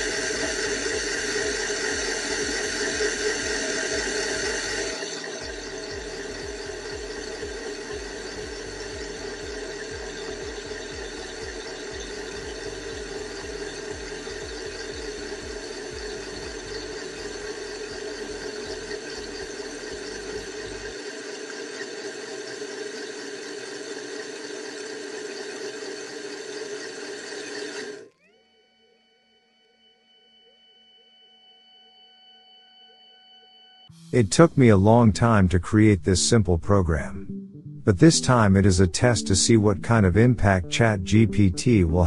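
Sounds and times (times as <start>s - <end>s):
low rapid throb: 0.0s - 21.0s, 34.0s - 42.0s
tool cutting cast iron: 0.0s - 28.0s
lathe motor whine: 0.0s - 35.9s.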